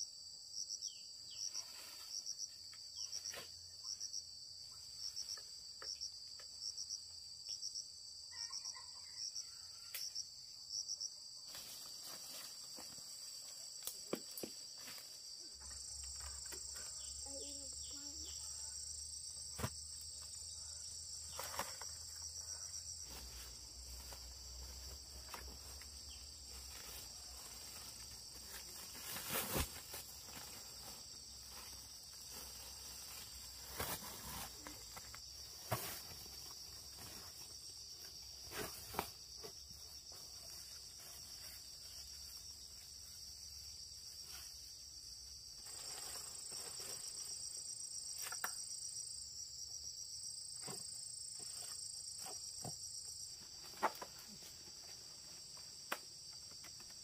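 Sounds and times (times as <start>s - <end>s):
insects calling: 0.0s - 57.0s
higher insect calling: 0.6s - 44.9s.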